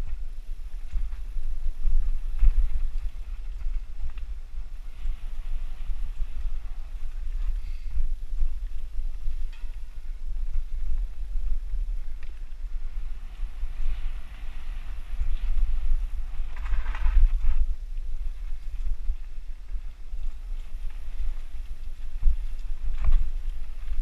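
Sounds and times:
wind buffeting microphone: 0.0s - 24.0s
bike clicks and rattles: 0.8s - 17.8s.

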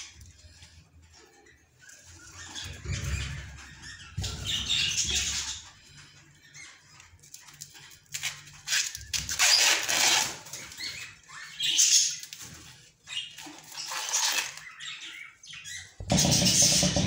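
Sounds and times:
corn husks rustling and tearing: 7.2s - 10.9s, 12.2s - 14.8s.

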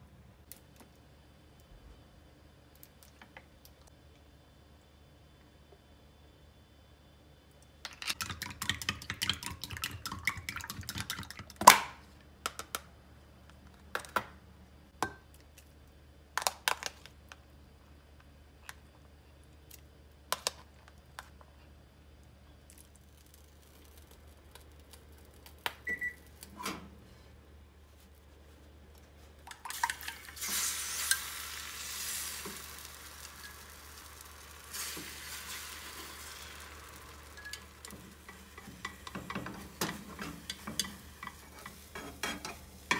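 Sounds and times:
egg whisked in ceramic cup: 8.0s - 11.5s
egg sizzling in hot pan: 29.5s - 42.9s.

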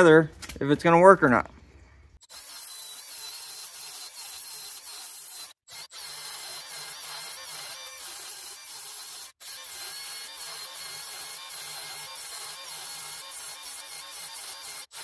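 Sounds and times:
belt sander grinding steel: 2.2s - 15.0s.

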